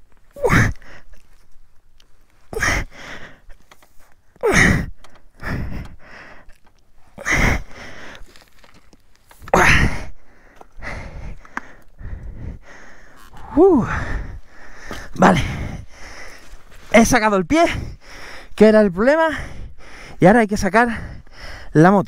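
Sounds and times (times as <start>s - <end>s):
man breathing heavily: 0.2s - 1.7s, 2.3s - 21.8s
man grunting with effort: 0.4s - 0.9s, 2.5s - 2.9s, 4.4s - 5.9s, 7.2s - 7.7s, 9.5s - 10.2s, 13.4s - 14.4s, 15.0s - 15.8s.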